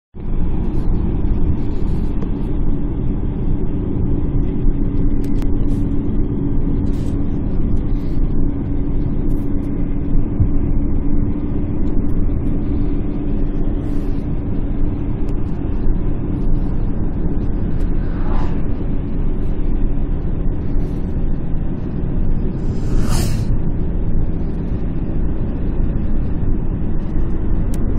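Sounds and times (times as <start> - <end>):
steady hum: 0.2 - 27.9
vehicle running rumble: 0.2 - 27.9.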